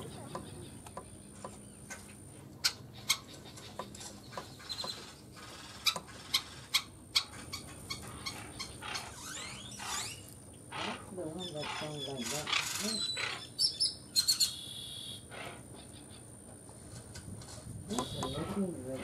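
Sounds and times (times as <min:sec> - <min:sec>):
sharp clicky bird calls: 0:00.0 - 0:16.3, 0:17.9 - 0:18.6
faint bird chirping: 0:00.0 - 0:16.4, 0:17.9 - 0:18.9.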